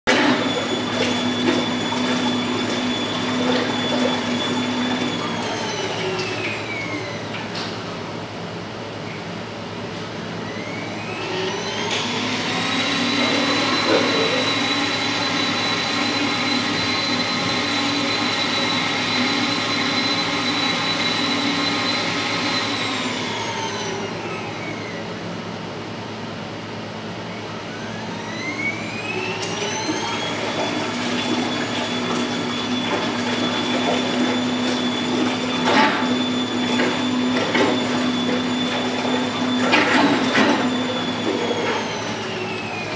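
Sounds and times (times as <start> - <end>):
water churning: 0.1 - 6.8, 29.4 - 42.9
thruster motor whine: 10.4 - 25.1, 27.3 - 42.9.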